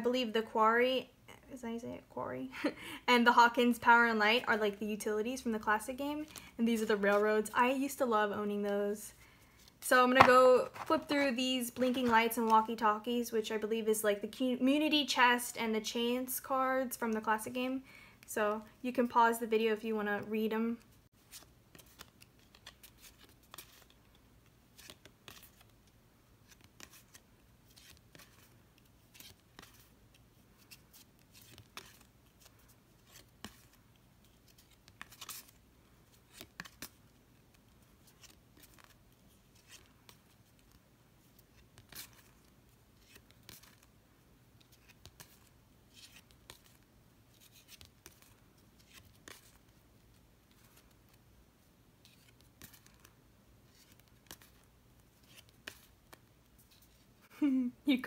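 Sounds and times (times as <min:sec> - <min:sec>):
cards being flipped: 0:09.6 - 0:11.0, 0:21.2 - 0:43.9, 0:44.6 - 0:51.2, 0:52.0 - 0:57.1.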